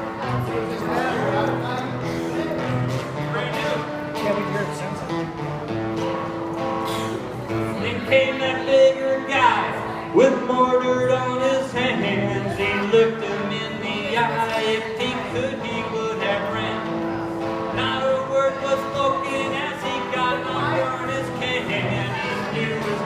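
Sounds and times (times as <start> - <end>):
acoustic guitar strumming: 0.0 - 23.0
man singing into a microphone: 7.7 - 23.0.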